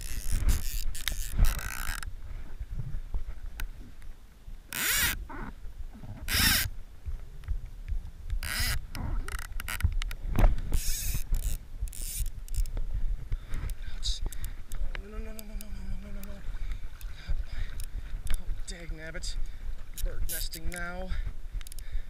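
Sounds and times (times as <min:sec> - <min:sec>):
fly reel ratchet buzzing: 0:00.0 - 0:02.0, 0:04.8 - 0:05.2, 0:06.3 - 0:06.7, 0:08.4 - 0:09.8, 0:10.7 - 0:12.7.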